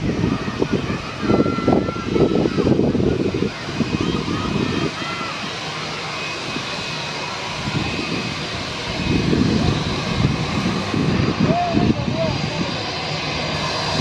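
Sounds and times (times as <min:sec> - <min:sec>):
jet engines running: 0:00.0 - 0:14.0
low rumbling: 0:06.5 - 0:14.0.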